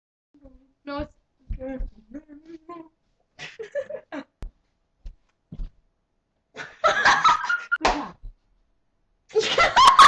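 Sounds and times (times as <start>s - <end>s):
women laughing: 3.4s - 4.4s, 6.6s - 7.8s, 9.3s - 10.0s.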